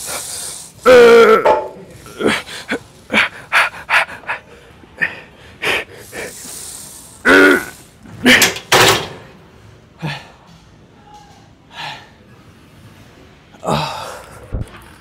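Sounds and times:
man groaning: 0.8 - 2.5.

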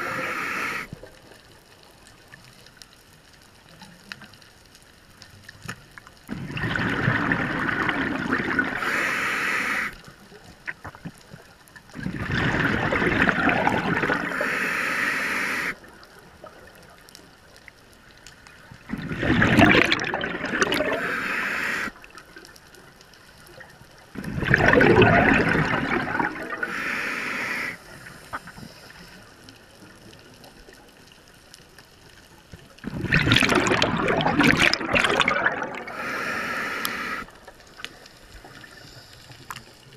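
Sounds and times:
diver exhaling bubbles underwater: 6.3 - 10.0, 11.9 - 15.8, 18.8 - 22.0, 24.2 - 27.8, 32.8 - 37.5.

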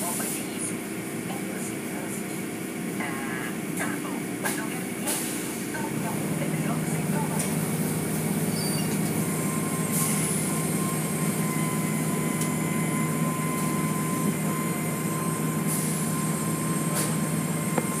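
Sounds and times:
machinery hum with high whine: 0.0 - 18.0.

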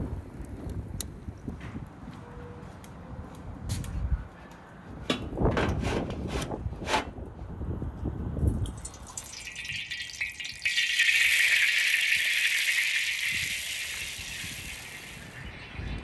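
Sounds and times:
water sizzling in hot wok: 8.7 - 15.7.

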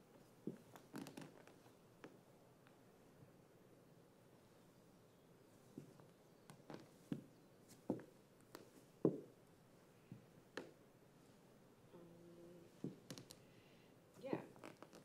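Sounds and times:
pointe shoes knocking on wooden floor: 9.0 - 9.3, 12.8 - 13.3.

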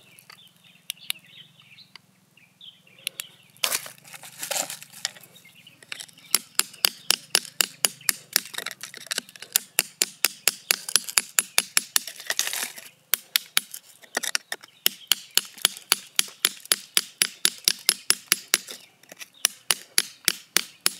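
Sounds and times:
rod scraping soil: 3.6 - 6.2, 12.0 - 13.0
steel rod tapping hard soil: 5.8 - 20.9.

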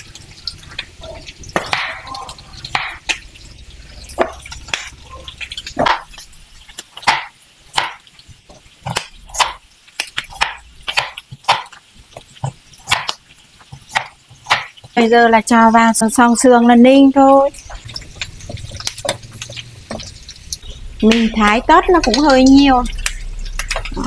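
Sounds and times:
cleaver chopping vegetables on wood: 7.0 - 15.0.

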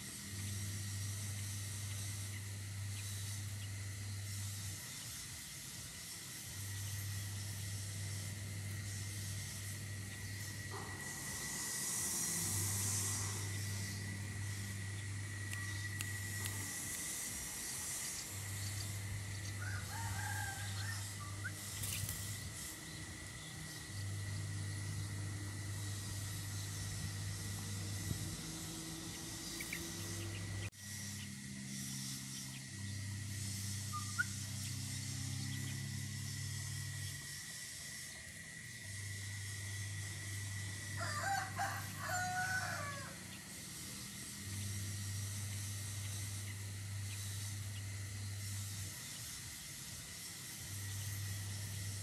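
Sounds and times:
steady hiss: 0.0 - 52.0
thin high whine: 0.0 - 52.0
rooster crowing: 19.5 - 21.6, 40.7 - 43.3.

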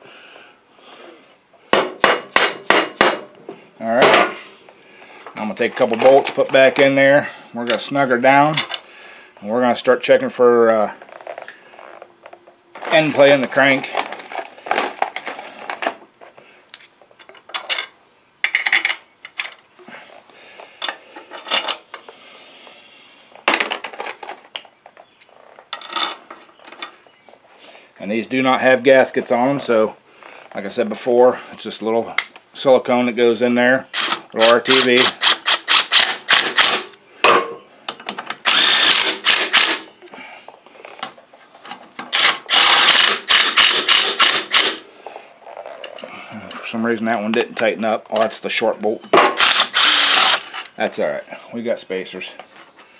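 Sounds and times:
metal bolts clinking: 5.3 - 7.0
cordless driver spinning: 34.0 - 36.8, 38.4 - 39.9, 42.1 - 44.8, 49.4 - 50.7.

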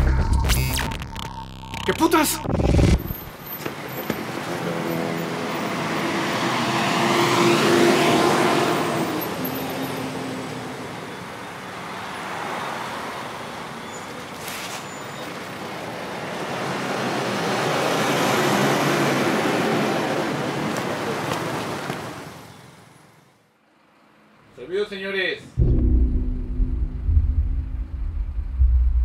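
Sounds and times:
buses and cars passing: 3.1 - 24.6
brief sharp sound: 25.6 - 29.0.

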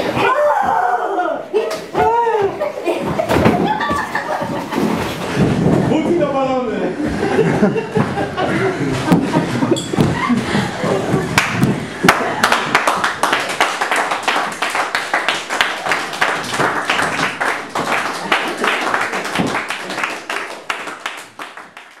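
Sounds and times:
people applauding: 11.3 - 22.0.

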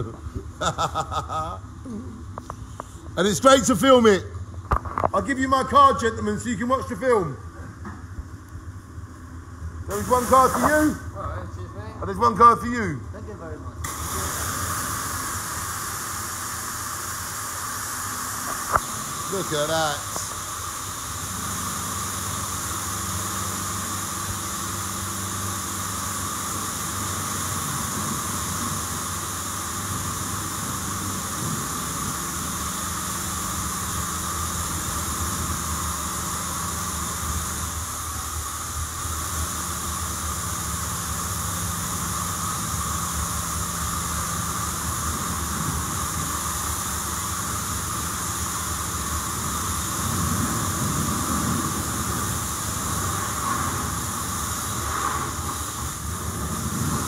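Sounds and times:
low machine hum: 0.0 - 57.0
pressure washer spraying: 9.8 - 11.1, 13.8 - 57.0.

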